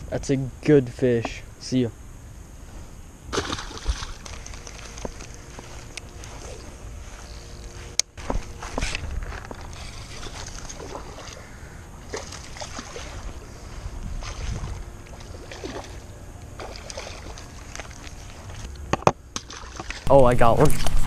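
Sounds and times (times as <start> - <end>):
faint ticks and rustles: 4.1 - 11.5
wind rumble on microphone: 12.8 - 15.8.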